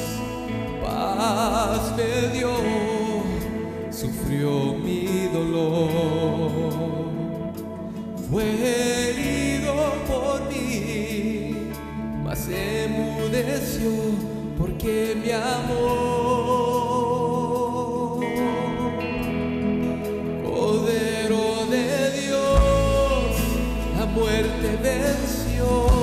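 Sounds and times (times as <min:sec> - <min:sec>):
slow worship music: 0:00.0 - 0:26.0.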